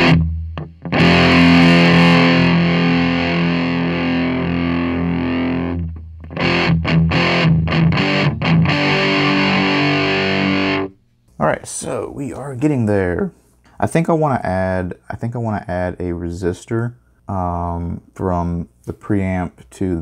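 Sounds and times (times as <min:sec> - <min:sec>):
distorted electric guitar chords: 0:00.0 - 0:11.0.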